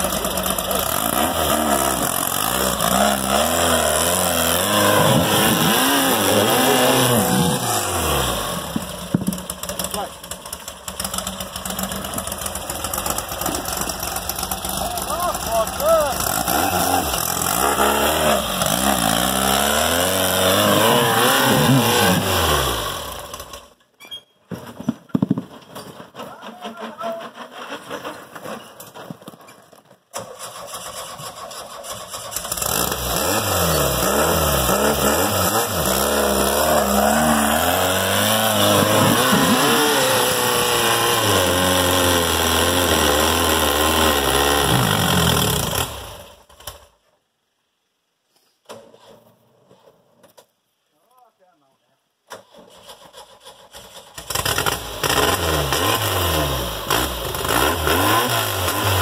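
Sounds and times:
buggy engine revving hard: 0.0 - 23.7, 30.7 - 46.4, 54.2 - 59.0
sharp knocks: 8.8 - 9.6.

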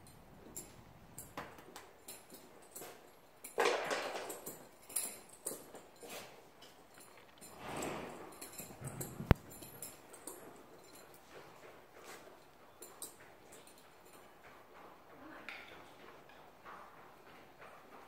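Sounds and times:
muffled hoof steps: 4.2 - 18.0
horse breathy rush: 7.4 - 9.7.

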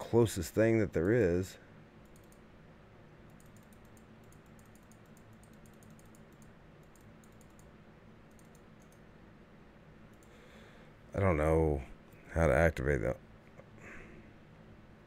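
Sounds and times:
low room hum: 0.0 - 15.0
computer clicks: 2.0 - 2.5, 3.2 - 9.1, 10.1 - 10.4.

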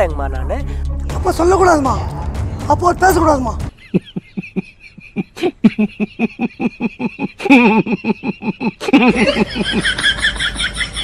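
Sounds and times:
man laughing: 3.7 - 11.0.

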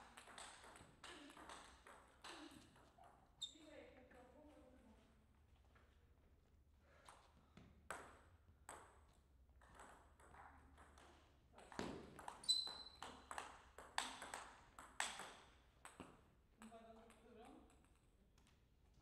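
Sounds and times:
table tennis ball bouncing: 0.0 - 3.2, 7.8 - 18.1
short high squeak: 12.4 - 13.0.

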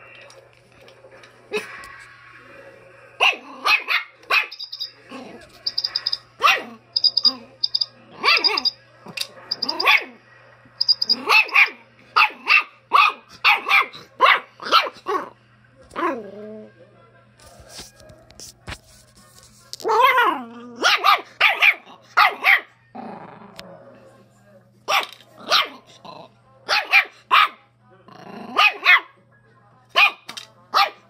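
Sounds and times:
puppy barking: 3.2 - 4.8, 6.4 - 7.3, 8.2 - 8.7, 9.6 - 10.2, 11.0 - 15.3, 19.9 - 22.7, 24.9 - 25.8, 26.7 - 27.6, 28.6 - 29.2, 30.0 - 31.0.

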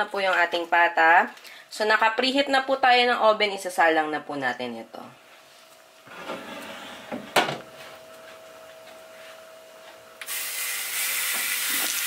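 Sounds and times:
faint oven hum: 0.0 - 11.9
meat sizzling on hot rack: 10.2 - 12.0.

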